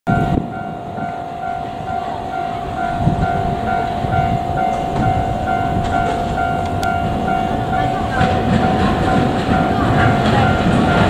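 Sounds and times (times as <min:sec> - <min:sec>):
level crossing warning bell: 0:00.1 - 0:11.0.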